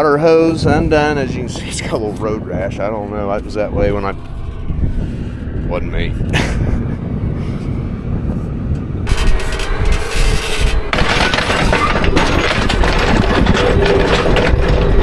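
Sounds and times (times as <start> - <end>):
low engine rumble: 0.0 - 15.0
gravel crunching under wheels: 8.1 - 15.0.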